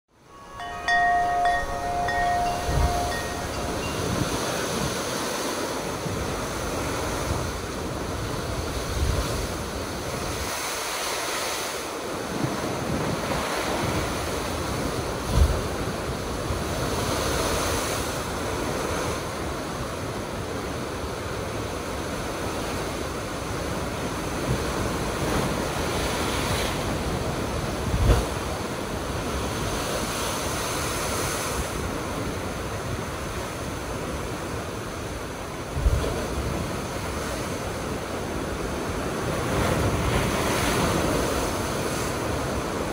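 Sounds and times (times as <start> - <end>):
ocean surf crashing on rocks: 0.3 - 42.9.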